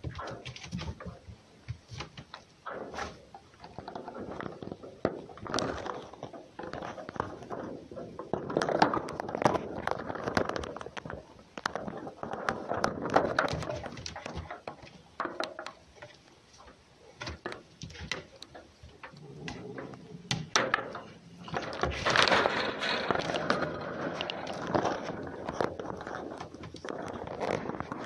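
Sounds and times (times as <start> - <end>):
claws scrabbling on metal: 0.0 - 28.0
low cat growl: 19.0 - 20.4.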